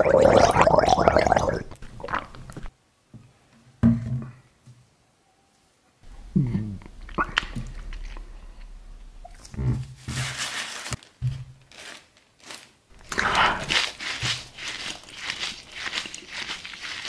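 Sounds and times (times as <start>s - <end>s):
paper wrapper crinkling: 10.0s - 17.0s.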